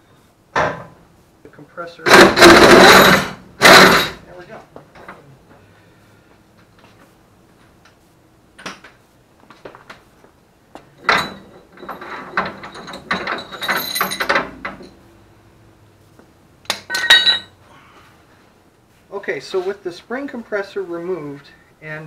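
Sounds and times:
metal clanking and rattling: 2.1s - 4.2s, 11.0s - 15.0s, 16.8s - 17.5s
metallic clinking and scraping: 11.0s - 15.0s, 16.8s - 17.6s.

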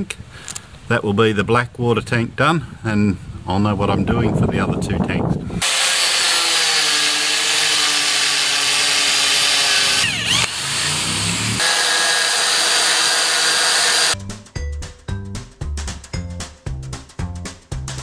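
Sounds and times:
angle grinder cutting metal: 5.6s - 14.2s
electric drill into steel: 5.6s - 14.2s
background music: 14.2s - 18.0s.

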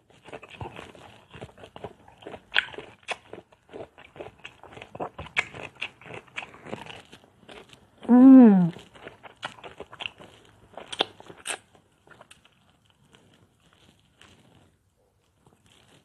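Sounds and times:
person chewing fruit: 0.0s - 16.0s.

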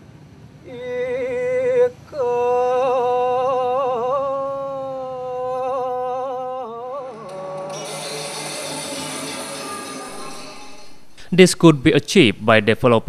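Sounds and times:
person singing: 0.7s - 10.6s.

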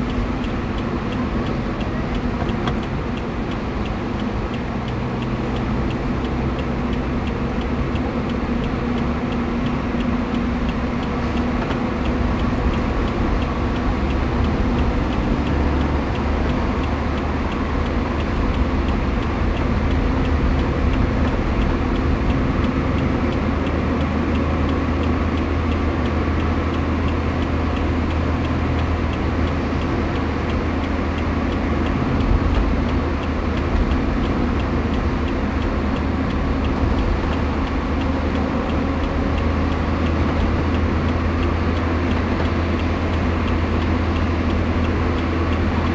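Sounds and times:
car road and engine noise: 0.0s - 45.9s.

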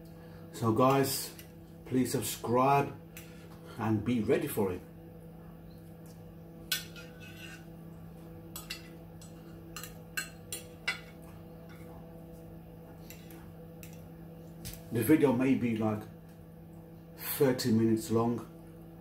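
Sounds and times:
fork scraping against plate: 6.7s - 7.7s.

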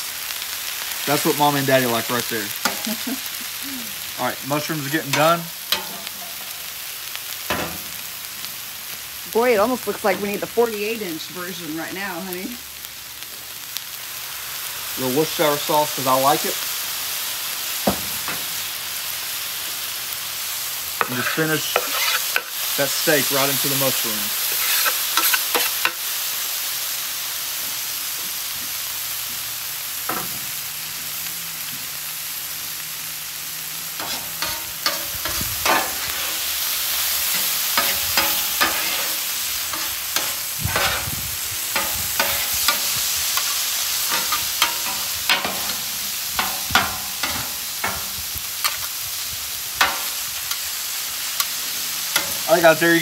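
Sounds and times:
meat sizzling on a griddle: 0.0s - 53.0s
metal spatulas scraping a griddle: 21.0s - 22.6s, 24.4s - 26.0s, 34.0s - 48.9s, 52.1s - 52.6s.

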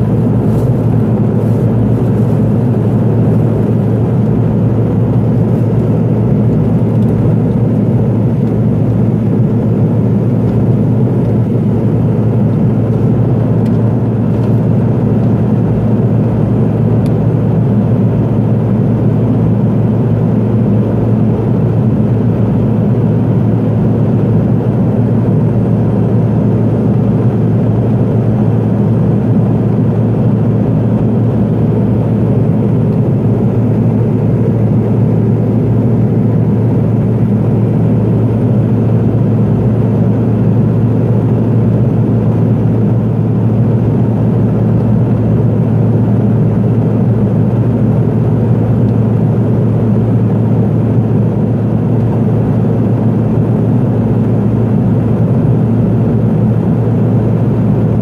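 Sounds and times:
turboprop cabin drone: 0.0s - 58.0s.

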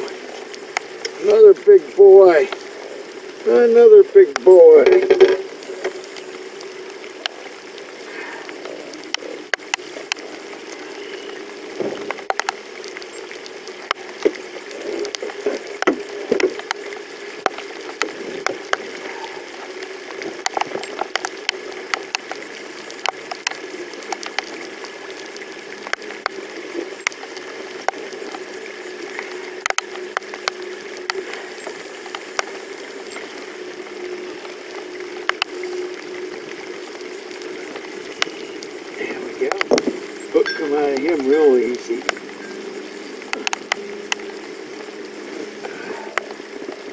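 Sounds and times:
sharp ticks and taps: 7.1s - 7.4s, 8.6s - 10.8s, 12.0s - 14.4s, 15.1s - 19.0s, 20.3s - 24.6s, 25.8s - 26.4s, 29.1s - 33.3s, 35.2s - 35.8s, 37.7s - 38.5s, 39.4s - 42.3s, 43.2s - 44.4s.

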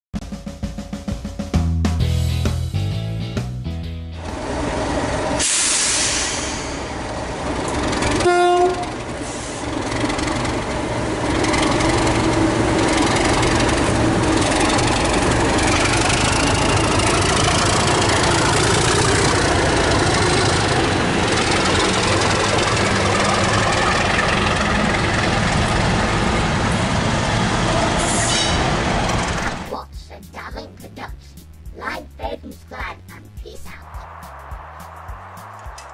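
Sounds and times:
diesel locomotive engine passing: 2.0s - 35.9s
train horn blast: 8.1s - 9.6s.

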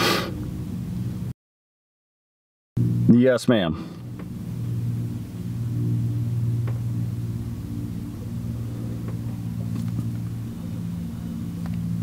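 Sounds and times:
vehicle idling hum: 0.0s - 1.3s, 2.8s - 12.0s.

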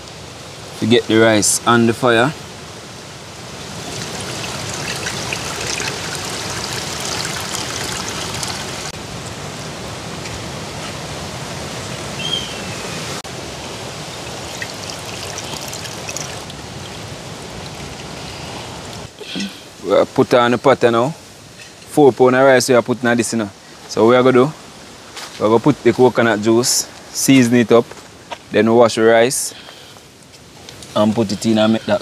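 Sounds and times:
liquid trickling into metal pot: 3.8s - 8.9s, 14.2s - 17.0s.

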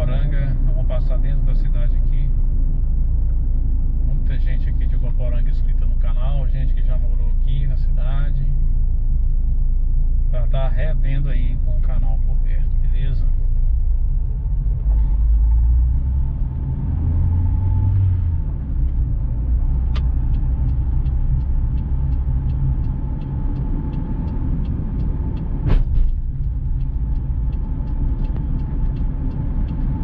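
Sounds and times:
car engine and road noise: 0.0s - 30.0s
quick regular ticking: 18.6s - 30.0s
sharp thump: 25.6s - 26.5s.

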